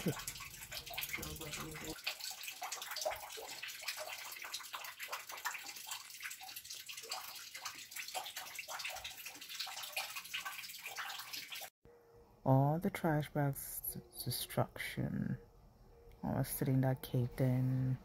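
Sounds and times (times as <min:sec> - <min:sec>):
water drops splashing into bucket: 0:00.0 - 0:11.7.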